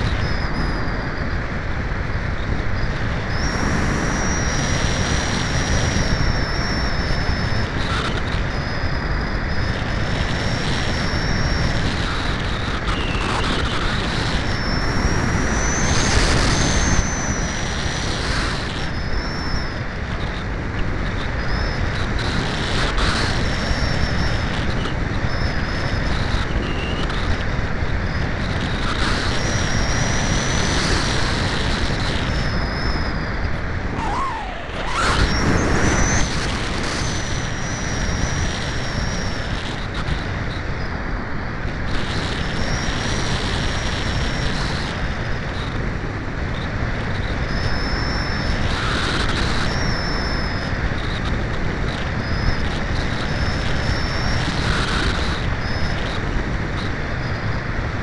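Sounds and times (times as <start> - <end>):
thin high whine: 0.0 - 58.0
wind rushing: 33.0 - 37.6.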